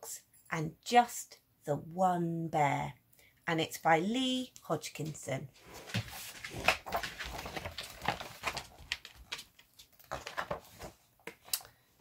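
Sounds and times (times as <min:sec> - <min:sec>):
book pages turning: 0:05.6 - 0:11.9.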